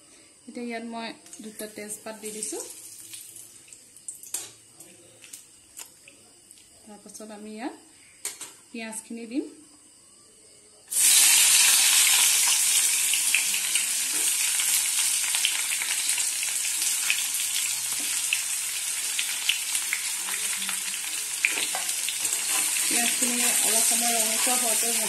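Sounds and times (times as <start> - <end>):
onions sizzling in hot oil: 10.9 - 25.0.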